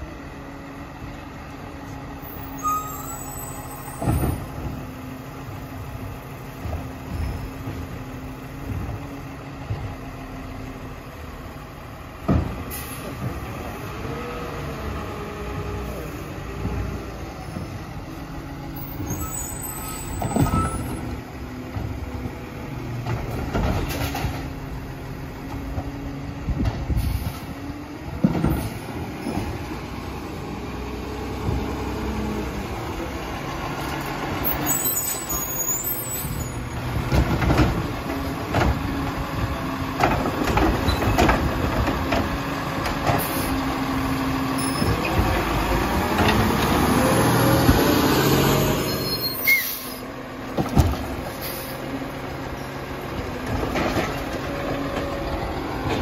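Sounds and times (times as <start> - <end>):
diesel engine droning: 0.0 - 56.0
air brakes hissing: 12.7 - 13.2, 26.9 - 27.6, 43.2 - 43.6, 48.8 - 50.1, 51.3 - 51.9.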